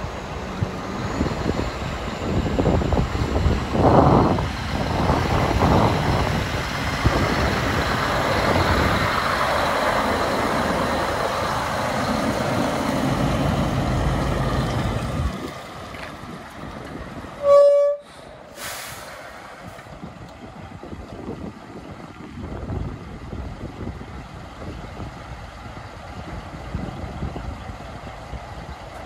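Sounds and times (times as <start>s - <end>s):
truck diesel engine driving off: 0.0s - 17.4s, 18.1s - 29.0s
truck horn toot: 17.4s - 18.2s
air hiss: 18.1s - 19.4s.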